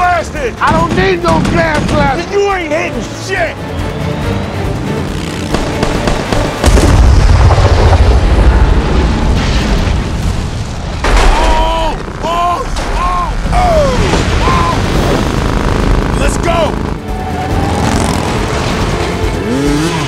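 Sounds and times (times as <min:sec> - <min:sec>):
explosion with deep rumble: 0:06.6 - 0:16.2
men yelling: 0:11.2 - 0:14.9.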